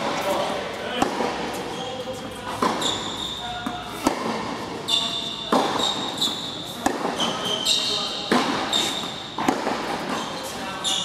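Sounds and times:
shoes squeaking on court: 0.0 - 11.0.

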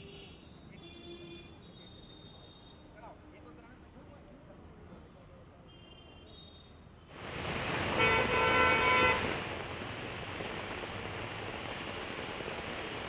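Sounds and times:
car tyres hissing on wet street: 7.1 - 13.0
heavy rain: 7.2 - 13.0
car horn honking: 7.8 - 9.4.

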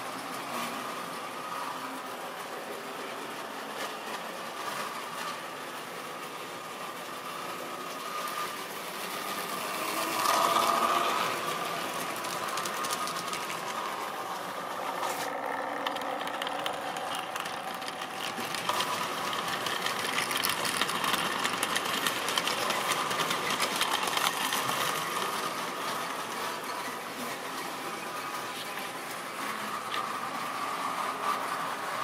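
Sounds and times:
small wheels clicking over rail joints: 0.1 - 32.0
model train motor whirring: 5.1 - 32.0.

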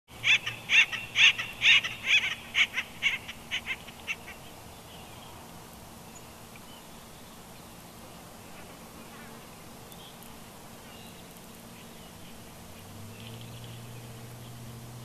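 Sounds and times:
woodpecker calling: 0.2 - 4.4.

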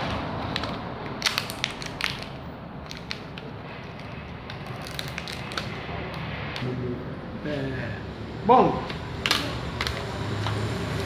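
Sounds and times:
plastic film peeling crackles: 0.0 - 6.7.

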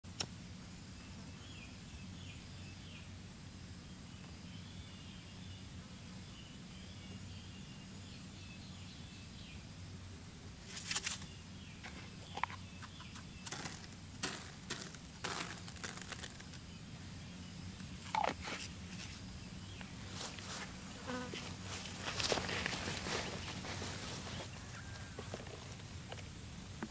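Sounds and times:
faint low hum: 0.1 - 26.9
grain sprinkling: 13.4 - 16.8.

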